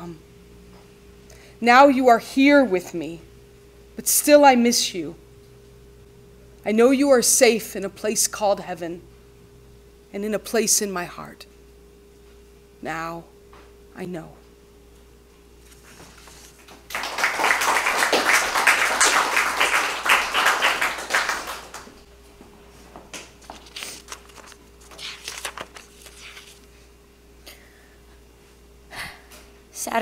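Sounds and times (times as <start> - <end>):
audience applauding: 16.9 - 22.0.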